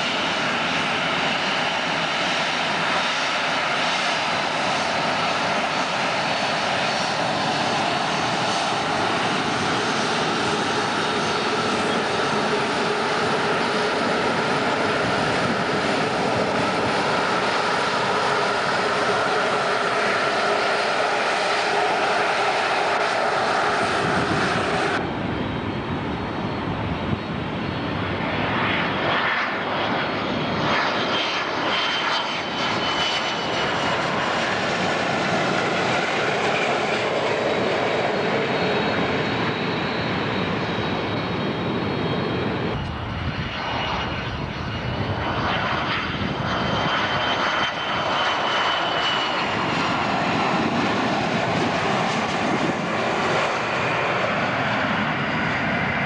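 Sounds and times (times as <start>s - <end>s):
airliner taxiing: 0.0s - 56.0s
low-flying jets passing: 0.0s - 56.0s.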